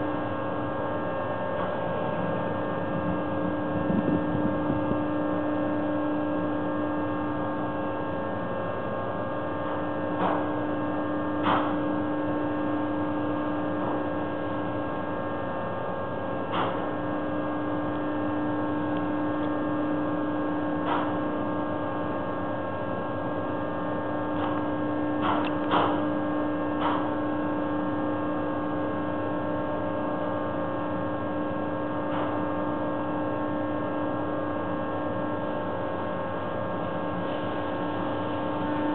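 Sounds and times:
machinery hum and whine: 0.0 - 38.9.

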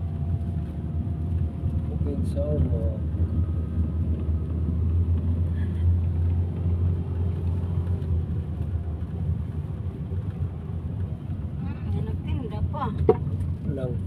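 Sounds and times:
car interior road rumble: 0.0 - 14.0.

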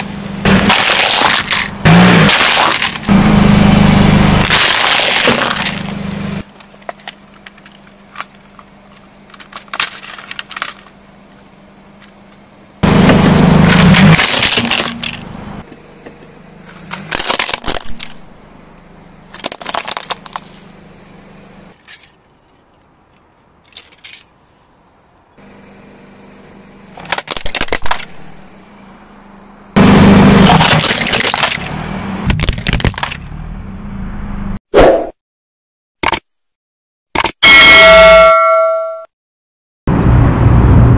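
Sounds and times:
tyre crushing plastic toys: 0.5 - 3.1, 4.4 - 5.9, 9.3 - 10.9, 13.7 - 15.2, 16.9 - 18.2, 19.3 - 20.6, 27.0 - 28.2, 30.4 - 31.7, 32.3 - 33.3.

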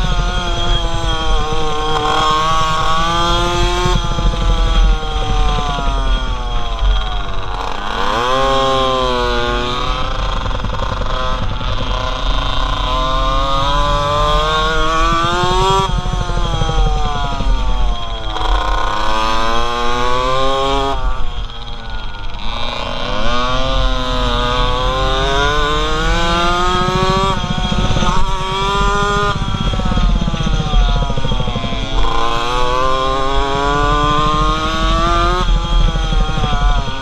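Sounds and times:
minibike engine revving: 0.0 - 37.0.

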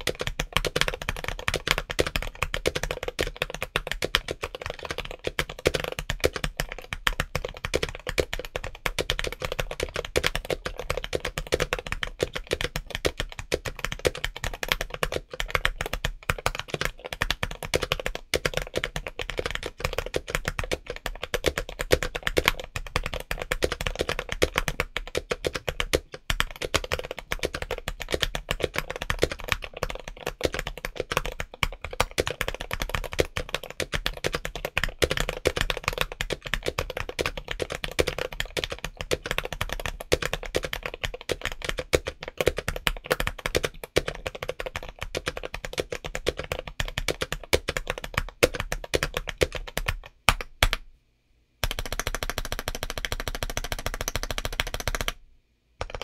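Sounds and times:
fast typing on a mechanical keyboard: 0.0 - 50.8, 51.6 - 55.2, 55.8 - 56.0.

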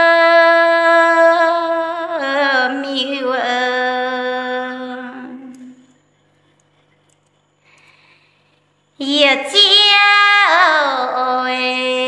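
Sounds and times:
woman singing unaccompanied: 0.0 - 5.9, 9.0 - 12.0.

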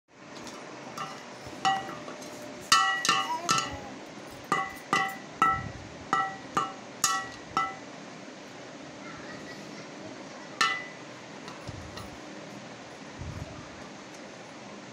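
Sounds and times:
stick beating metal pot lid: 1.0 - 3.8, 4.5 - 7.8, 10.6 - 12.1.

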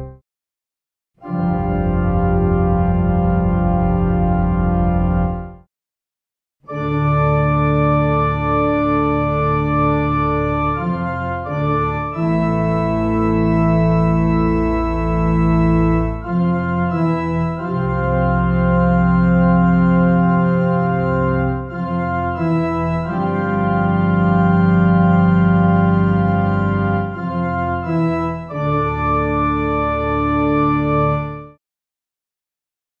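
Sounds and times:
deep pipe organ notes: 1.2 - 5.6, 6.7 - 31.6.

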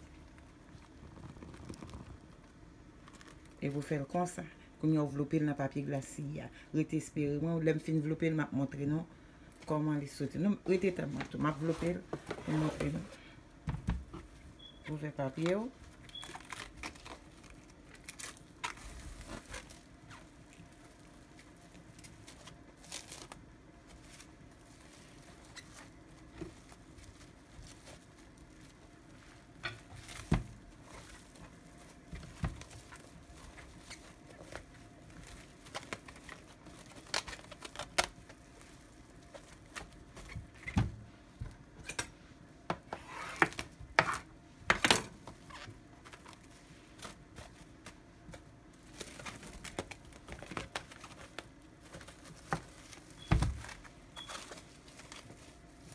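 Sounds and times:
cling film crinkling: 0.0 - 3.9, 15.4 - 40.6, 45.2 - 55.9.

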